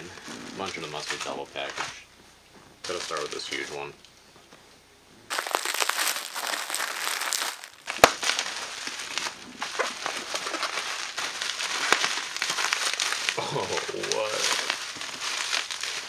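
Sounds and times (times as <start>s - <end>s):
bubble wrap crinkling: 0.0s - 2.0s, 2.8s - 3.8s, 5.3s - 16.0s
bubble wrap pop: 5.3s - 16.0s.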